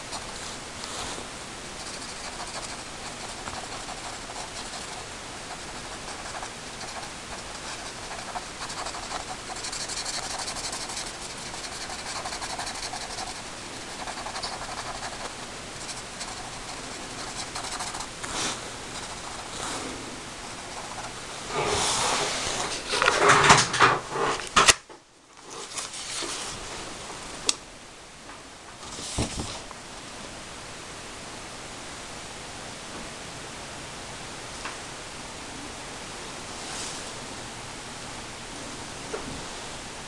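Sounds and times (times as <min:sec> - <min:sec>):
pen scratching on paper: 0:00.0 - 0:00.4, 0:01.8 - 0:18.1, 0:18.8 - 0:22.4.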